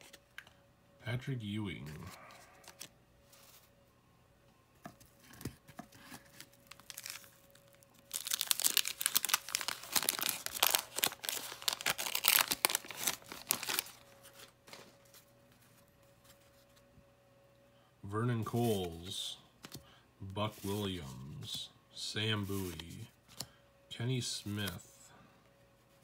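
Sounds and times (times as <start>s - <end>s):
soft handling rustles: 1.9s - 3.8s, 9.1s - 16.9s, 22.4s - 23.4s
wax paper tearing and crumpling: 6.2s - 14.9s.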